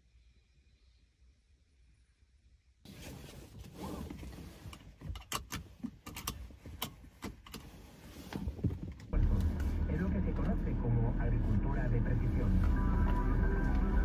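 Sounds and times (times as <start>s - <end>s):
clicks and rustling in car: 2.9s - 10.7s
low rumble: 9.1s - 14.0s
steady low hum: 9.1s - 14.0s.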